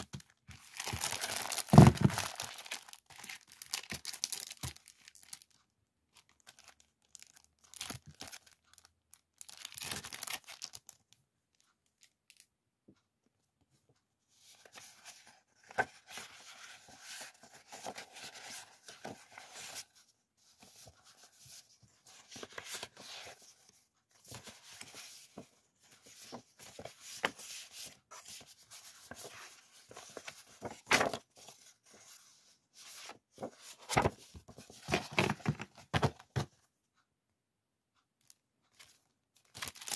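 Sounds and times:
paper and plastic rustling: 0.0 - 5.6, 14.5 - 36.6.

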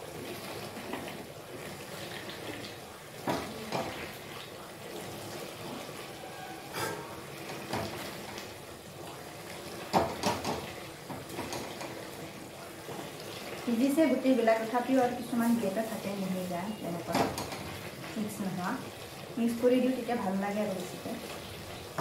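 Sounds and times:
wet mash bubbling: 0.0 - 22.0
wooden spoon knocking on wok: 3.2 - 4.0, 9.9 - 11.9, 17.1 - 17.7.

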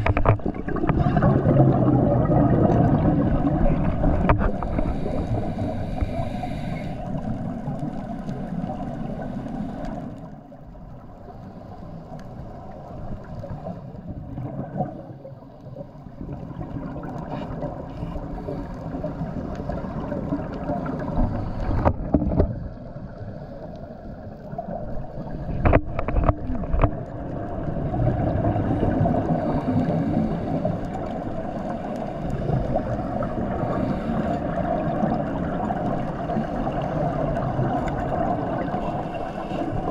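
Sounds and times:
exhaled bubbles rushing: 0.0 - 6.3, 12.6 - 23.3, 24.2 - 39.9
diver breathing through regulator: 4.3 - 7.5, 28.6 - 34.7.

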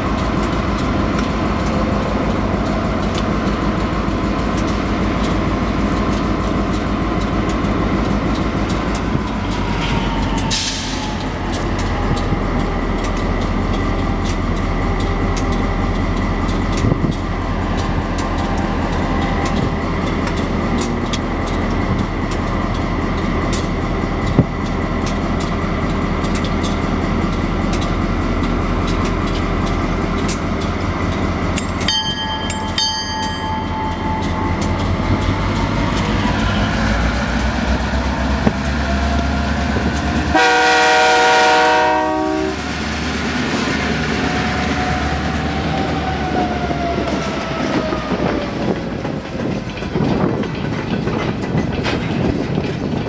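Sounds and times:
diesel locomotive rumble: 0.0 - 53.0
ringing tones: 31.6 - 35.4.

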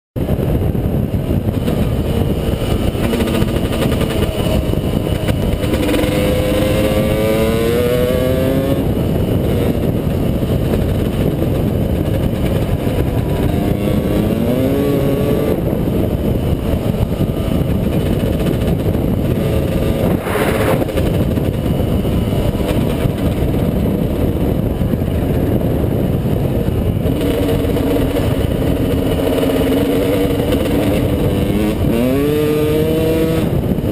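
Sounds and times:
dirt bike engine accelerating: 0.2 - 33.9
wind noise: 0.2 - 33.9.

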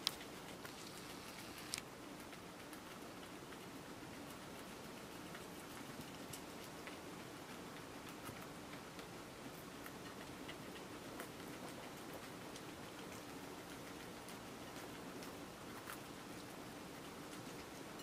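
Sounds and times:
guinea pigs chewing: 0.0 - 18.0.

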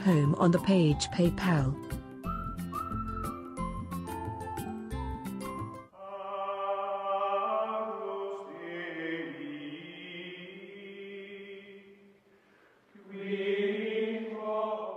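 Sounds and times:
choir-like chanting: 6.0 - 12.1, 12.9 - 14.9.

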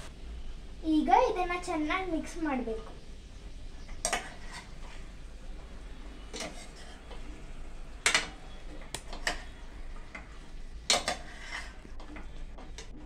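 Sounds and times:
spoon clinking and scraping pot: 3.8 - 5.1, 6.3 - 7.2, 9.1 - 12.4.

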